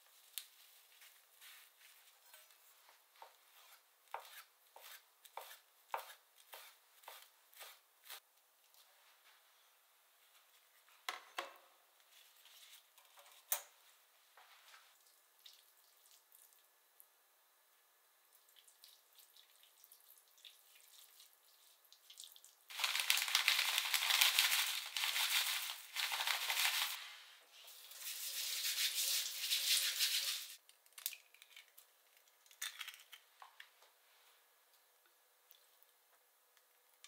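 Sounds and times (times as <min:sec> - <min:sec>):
dried seaweed rustling into strainer: 0:22.7 - 0:27.2.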